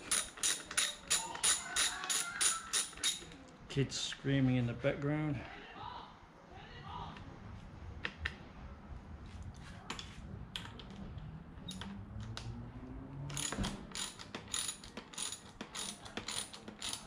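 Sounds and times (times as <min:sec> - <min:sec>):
socket ratchet clicking: 0:00.0 - 0:03.4, 0:13.3 - 0:17.0.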